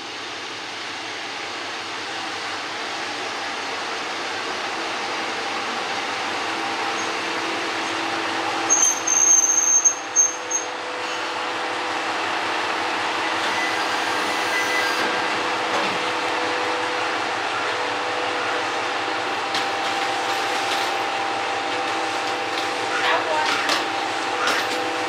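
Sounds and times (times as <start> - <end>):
diesel engine idling: 15.1 - 25.0.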